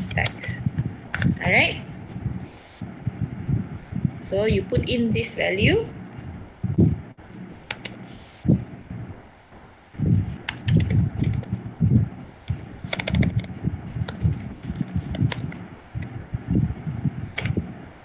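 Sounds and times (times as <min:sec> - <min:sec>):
typing on a keyboard: 0:10.4 - 0:11.5, 0:12.8 - 0:15.6.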